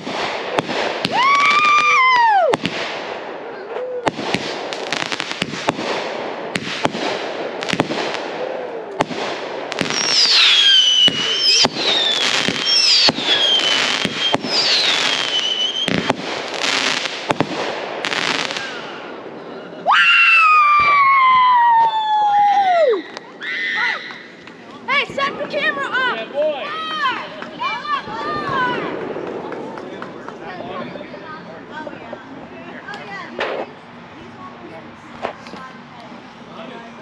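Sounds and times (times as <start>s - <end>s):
fireworks bangs and crackles: 0.0s - 19.4s, 27.1s - 33.8s
firework whistles falling in pitch: 9.8s - 16.1s.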